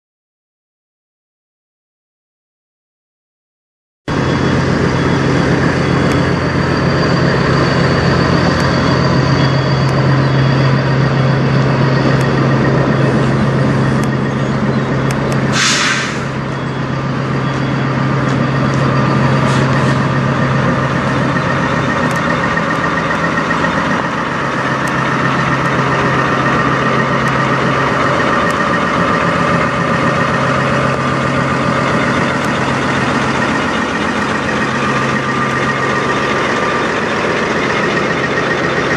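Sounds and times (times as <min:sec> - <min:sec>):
air brake hiss: 0:15.5 - 0:16.4.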